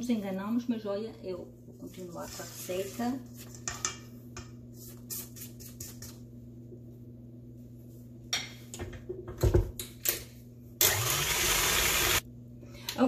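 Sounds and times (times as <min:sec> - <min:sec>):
stand mixer motor running: 0:10.8 - 0:12.2.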